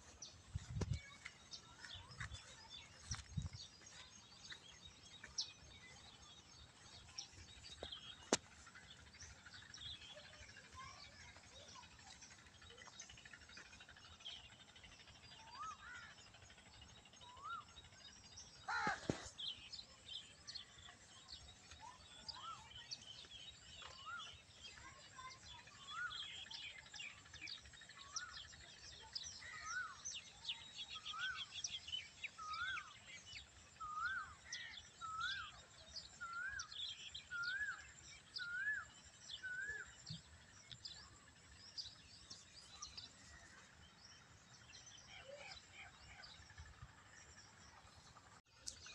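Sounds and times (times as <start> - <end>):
birds calling and chirping: 0.0 - 48.9.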